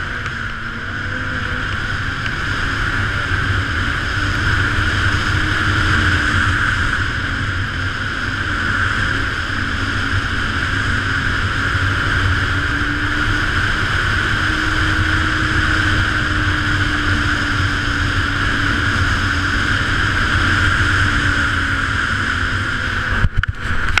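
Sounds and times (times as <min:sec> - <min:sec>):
snowmobile engine cruising: 0:00.0 - 0:24.0.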